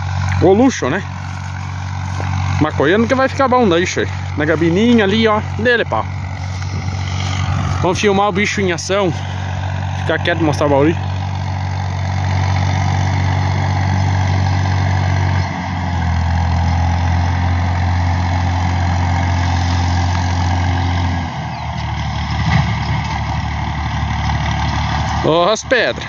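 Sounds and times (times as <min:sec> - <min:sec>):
diesel tractor engine under load: 0:00.0 - 0:26.0.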